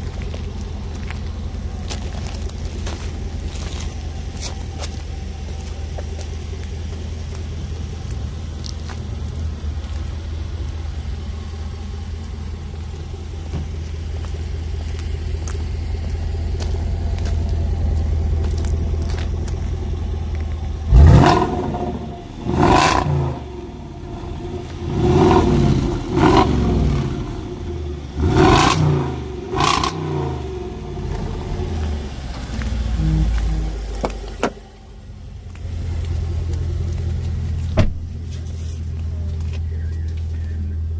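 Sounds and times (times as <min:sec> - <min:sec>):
car engine idling and revving: 0:00.0 - 0:40.9.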